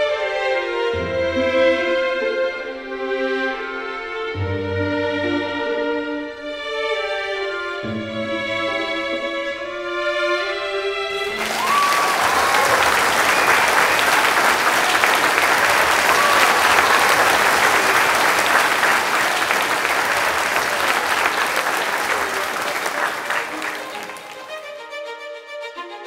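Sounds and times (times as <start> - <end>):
music with held notes: 0.0 - 11.4, 22.6 - 26.0
crowd applauding: 11.1 - 24.7.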